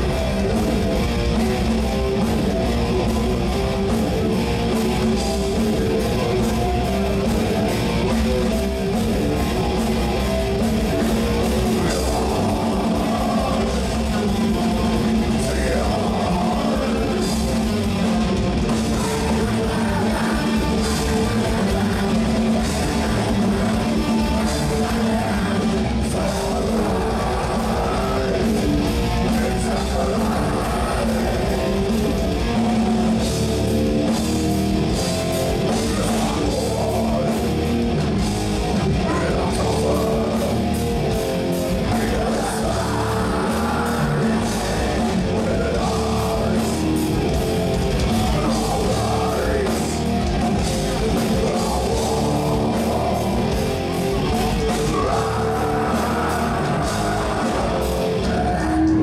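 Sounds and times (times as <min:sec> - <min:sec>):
person singing: 0:00.0 - 0:33.5, 0:34.8 - 0:59.0
bass guitar: 0:00.0 - 0:59.0
drum kit: 0:00.0 - 0:59.0
electric guitars: 0:00.0 - 0:59.0.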